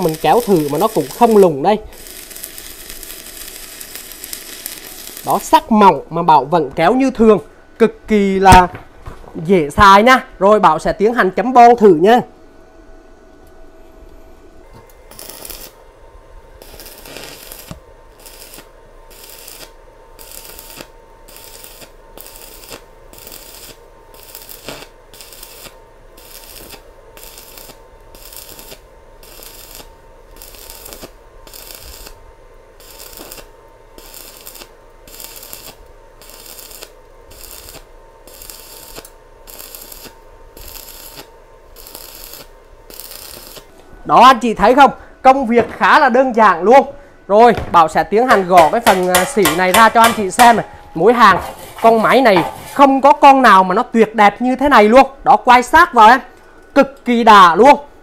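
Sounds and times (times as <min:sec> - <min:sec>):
welding arc crackling: 0:00.0 - 0:07.0, 0:14.7 - 0:46.7, 0:47.3 - 0:53.2.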